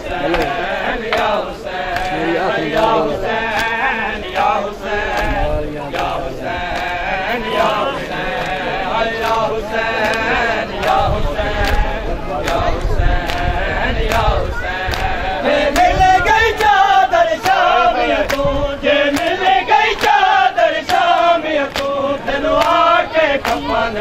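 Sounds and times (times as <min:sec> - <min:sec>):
men chanting in unison: 0:00.0 - 0:24.0
hands slapping bare chests: 0:00.2 - 0:02.9, 0:03.5 - 0:07.7, 0:08.3 - 0:11.0, 0:11.6 - 0:11.8, 0:12.4 - 0:13.5, 0:14.1 - 0:18.5, 0:19.1 - 0:22.0, 0:22.6 - 0:22.8, 0:23.4 - 0:23.8.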